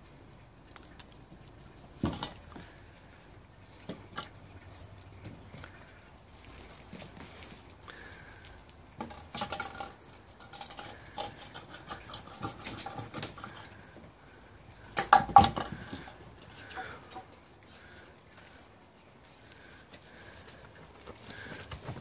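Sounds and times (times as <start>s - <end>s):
puppy paws pattering on paving: 0.5s - 8.9s.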